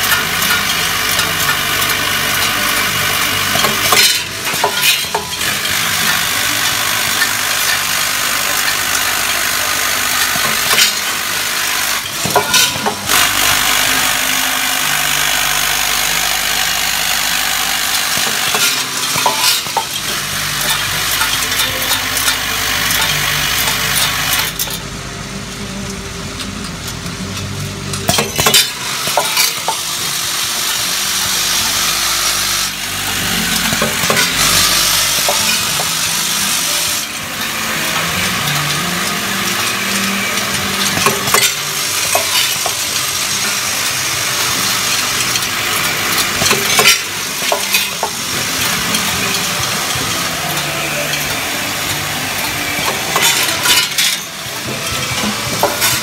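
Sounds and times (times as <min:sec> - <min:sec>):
screws rattling in steel bowl: 0:00.0 - 0:24.8, 0:28.1 - 0:56.0.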